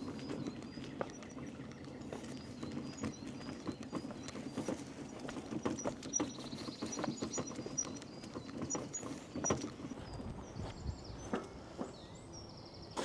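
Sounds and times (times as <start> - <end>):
wheelbarrow clattering over cobblestones: 0.0 - 10.2.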